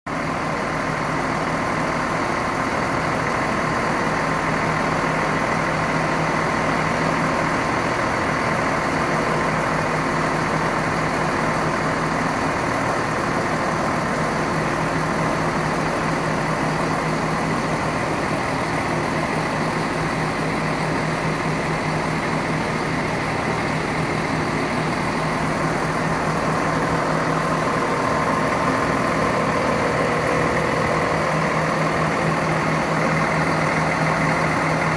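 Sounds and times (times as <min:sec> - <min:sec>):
diesel engine idling: 0:00.1 - 0:34.9
steady whine: 0:14.3 - 0:34.9.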